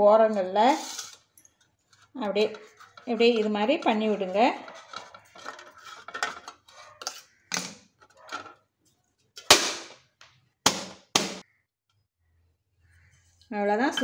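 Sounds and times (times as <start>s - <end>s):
knife scraping steel cup: 0.7s - 1.3s, 2.0s - 7.3s.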